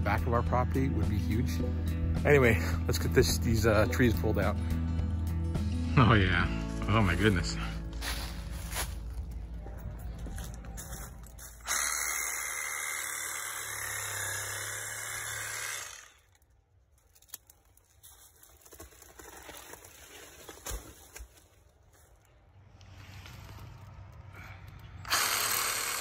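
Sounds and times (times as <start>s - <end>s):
reciprocating saw cutting: 11.6s - 16.4s, 25.0s - 26.0s.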